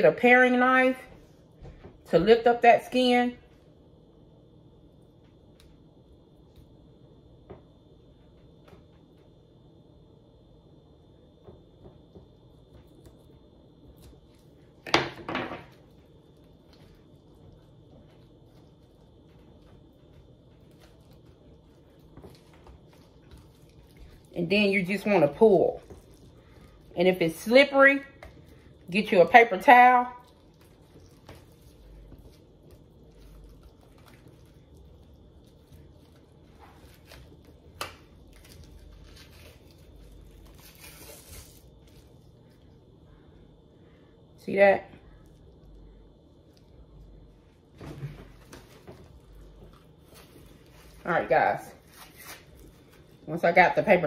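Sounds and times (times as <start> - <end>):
membrane tearing off ribs: 36.6 - 42.0.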